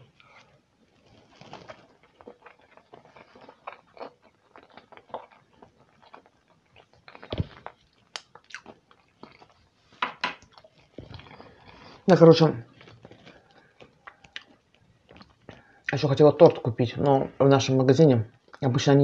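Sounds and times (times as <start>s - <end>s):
close-miked chewing: 0.0s - 9.8s, 10.4s - 16.0s.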